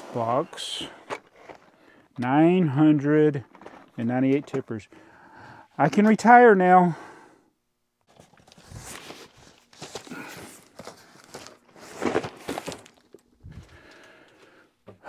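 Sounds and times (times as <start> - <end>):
plastic tote rustling and scraping: 8.1 - 13.7.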